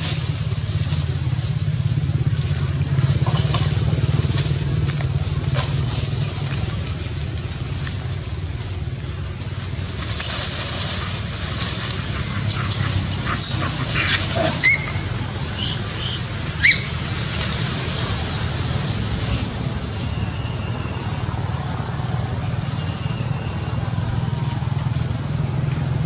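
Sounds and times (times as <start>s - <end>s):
steady low rumble: 0.0s - 22.6s
high-pitched squeaks and chirps: 10.2s - 17.0s.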